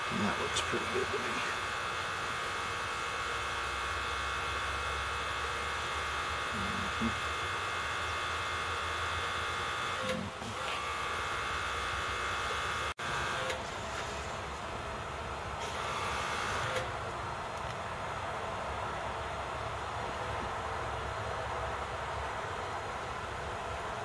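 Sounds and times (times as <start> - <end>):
high tonal whine: 0.0 - 8.7
electric machinery hum: 0.0 - 24.0.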